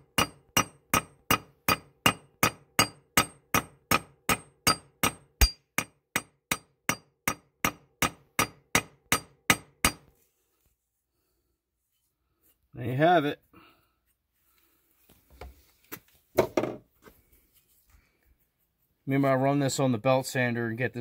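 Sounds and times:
hammer striking metal wedge: 0.0 - 10.1.

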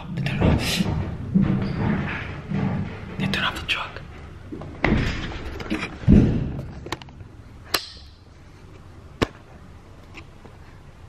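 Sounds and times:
heavy thump: 0.2 - 3.2, 6.0 - 6.8.

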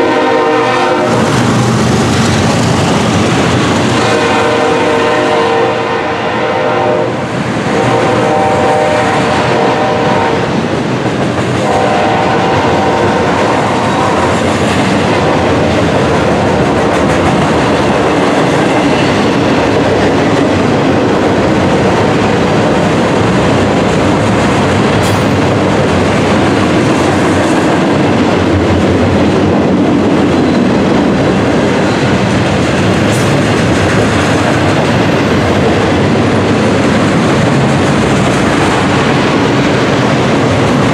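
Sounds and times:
train horn chord: 0.0 - 1.3, 4.0 - 10.5, 11.6 - 14.3
train wheels rumbling on rail: 0.0 - 40.9.

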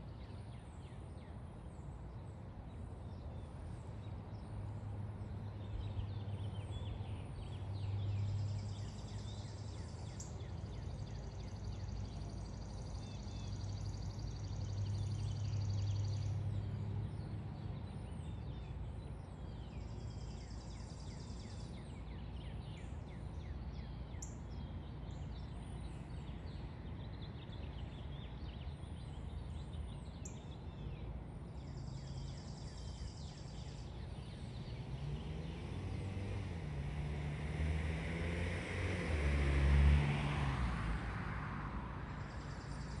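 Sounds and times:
traffic rumble: 0.0 - 43.0
vehicle passing: 33.0 - 43.0.

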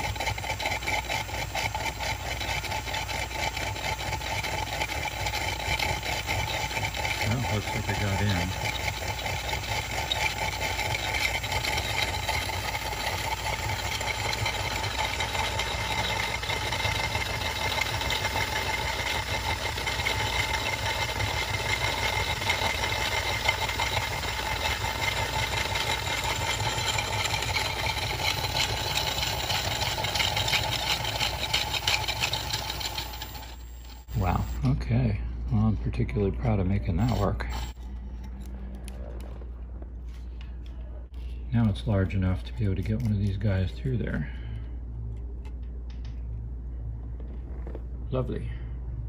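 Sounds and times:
cordless drill boring: 0.0 - 34.6, 36.9 - 37.8.

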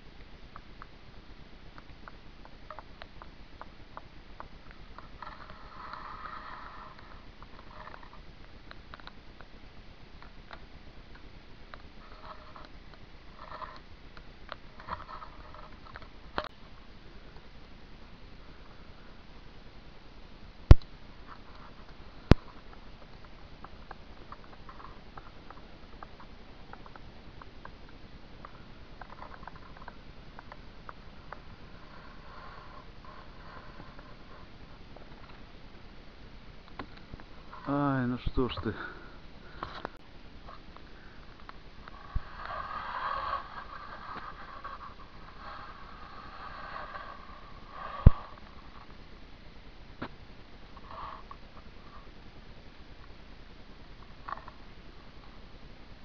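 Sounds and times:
steady rasping sound: 4.4 - 8.3, 28.4 - 35.4, 36.8 - 49.0.

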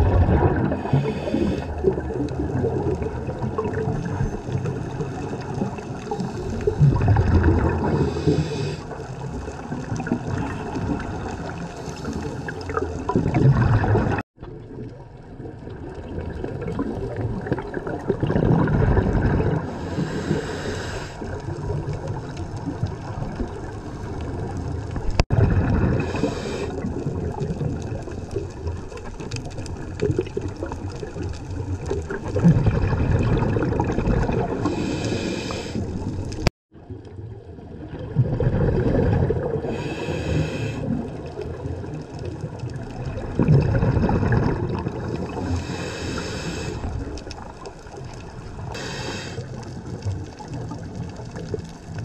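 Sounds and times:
exhaled bubbles gurgling: 0.0 - 52.0
scuba regulator inhale hiss: 0.7 - 1.9, 7.9 - 9.0, 19.7 - 21.4, 26.0 - 26.8, 34.6 - 36.1, 39.7 - 41.0, 45.4 - 47.0, 48.7 - 49.7.

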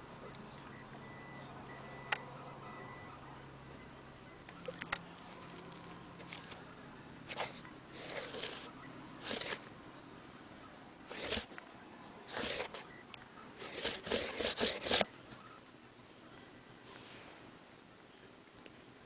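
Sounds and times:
scratchy rustling: 7.3 - 9.7, 11.1 - 11.5, 12.3 - 12.9, 13.6 - 15.1.

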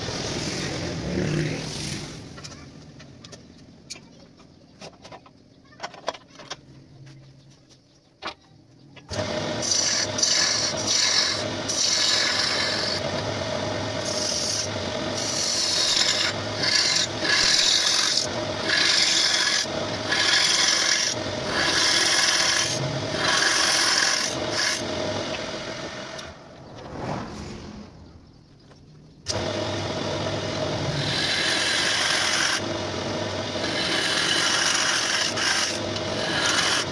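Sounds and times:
lathe motor hum: 9.1 - 26.4, 29.3 - 36.9
tool scraping spinning wood: 9.1 - 28.2, 29.3 - 36.9.

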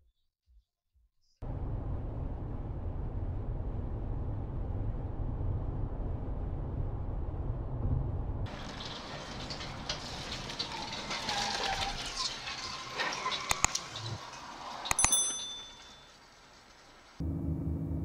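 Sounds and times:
car road noise rumble: 1.4 - 14.9, 16.2 - 18.0
tyre and traffic rushing: 6.3 - 18.0.

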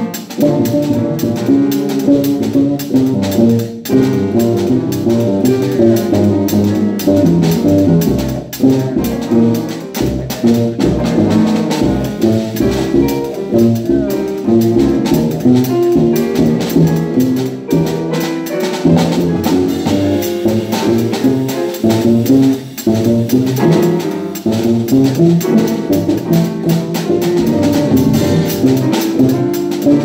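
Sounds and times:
double bass: 0.0 - 30.0
drum kit: 0.0 - 30.0
grand piano: 0.0 - 30.0.

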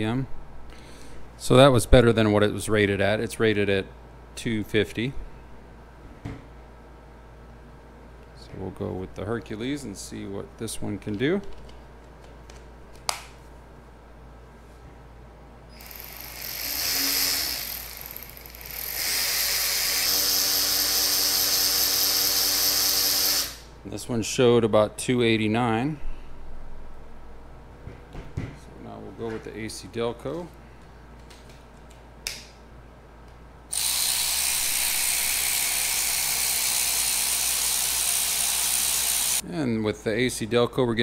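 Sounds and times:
cordless ratchet motor whine: 15.7 - 23.7, 33.7 - 39.4.

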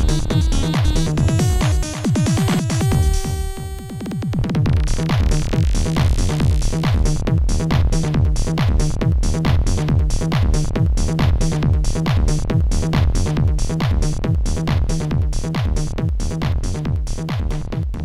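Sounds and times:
held synth chords: 0.0 - 4.5
electronic trance music: 0.0 - 16.8
fast kick drum beat with hi-hats: 0.0 - 18.0.

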